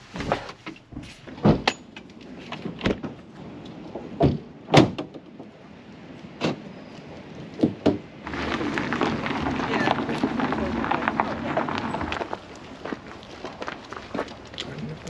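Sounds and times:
camper door knocks and clunks: 4.2 - 5.2.

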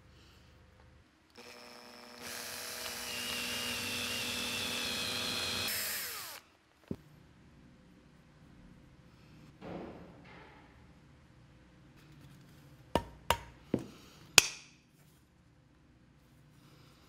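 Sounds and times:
cordless drill whining: 1.4 - 6.4.

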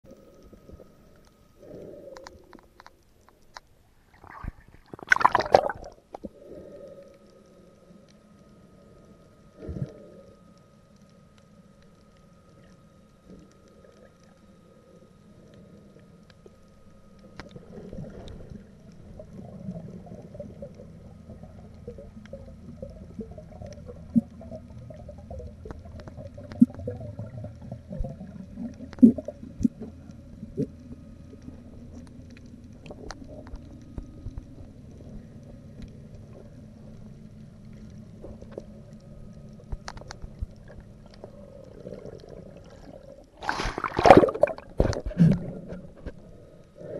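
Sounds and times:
low underwater rumble: 0.0 - 46.9
faint steady tone: 0.1 - 4.2, 5.6 - 43.4
loud splash: 5.1 - 5.9, 43.4 - 44.6.

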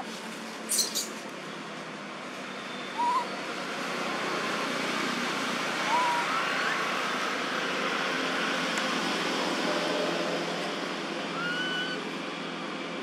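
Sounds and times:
whistled bird calls: 2.7 - 3.4, 5.9 - 6.8, 11.4 - 12.0.

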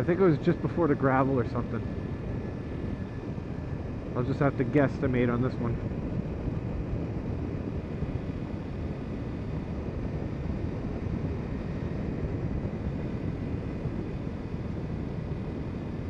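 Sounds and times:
road noise: 0.0 - 9.2.

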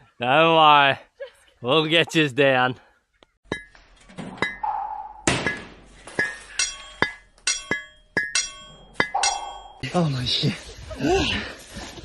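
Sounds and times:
metal tools striking stones: 3.5 - 3.8, 5.4 - 9.8.

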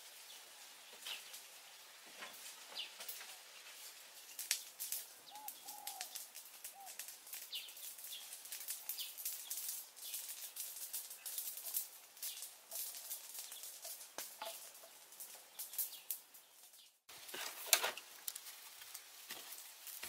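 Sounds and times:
brush fire crackling: 0.0 - 20.0
arched bird calls: 4.4 - 17.0
bird chirps: 5.2 - 10.3.

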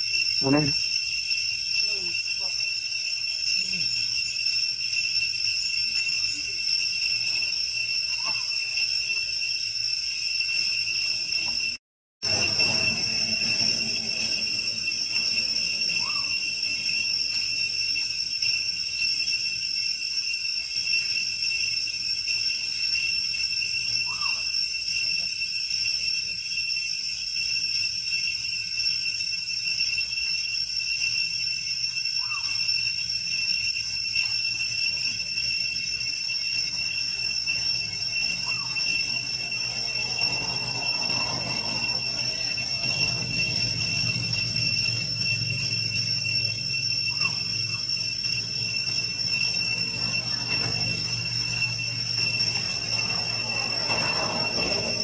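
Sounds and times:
high-pitched insect chorus: 0.0 - 55.0
low hum: 12.2 - 17.4.

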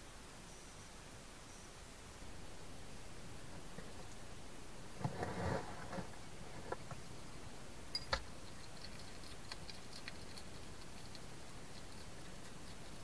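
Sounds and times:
steady hiss: 0.0 - 13.0
hedgehog chewing ticks: 6.1 - 13.0.

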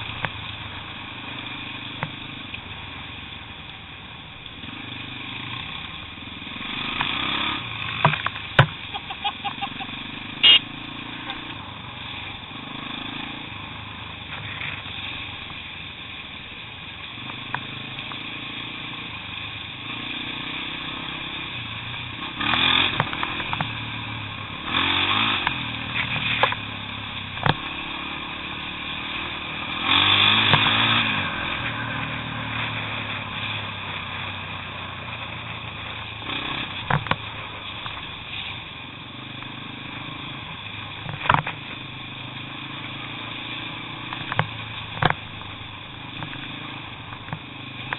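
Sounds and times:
motorcycle engine revving: 0.0 - 47.9
motorcycle knocking over bumps: 6.8 - 11.6, 21.9 - 24.0, 27.3 - 27.9, 29.9 - 31.7, 36.5 - 38.2, 40.9 - 41.9, 44.0 - 47.9.

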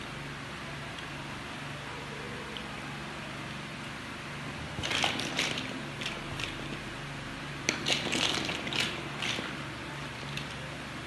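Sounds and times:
steady low hum: 0.0 - 11.0
plastic blocks clicking together: 7.7 - 9.5.

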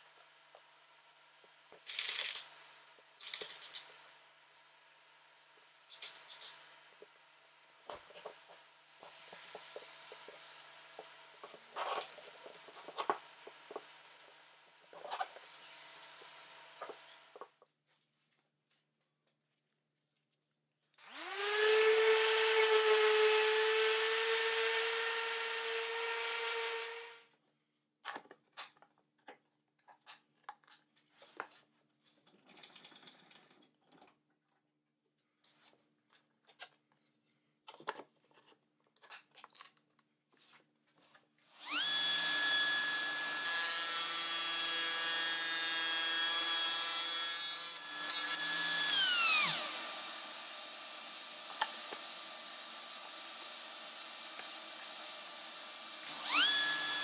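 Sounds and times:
table saw running: 21.1 - 27.2, 41.6 - 57.0
orbit sander whining: 41.6 - 47.0, 47.7 - 57.0.

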